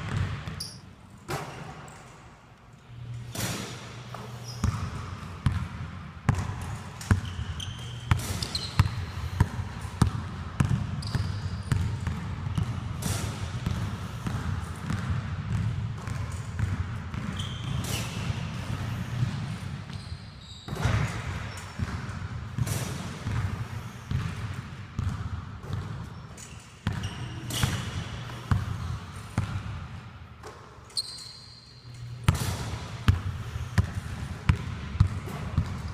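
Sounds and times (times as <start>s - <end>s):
sneaker squeaks: 0.0s - 2.2s, 4.0s - 5.6s, 6.9s - 9.5s, 10.6s - 12.2s, 17.1s - 22.0s, 25.0s - 29.3s, 30.5s - 32.4s
basketballs bouncing on hardwood: 25.0s - 26.0s.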